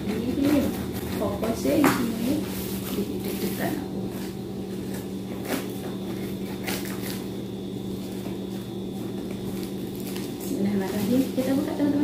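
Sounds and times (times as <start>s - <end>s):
steady low hum: 0.0s - 12.0s
scissors cutting packing tape: 4.9s - 7.3s, 9.5s - 11.1s.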